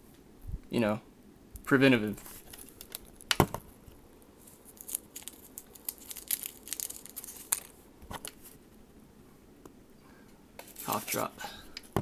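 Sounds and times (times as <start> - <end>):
plastic wrapper crinkling: 2.2 - 3.6, 4.4 - 8.5.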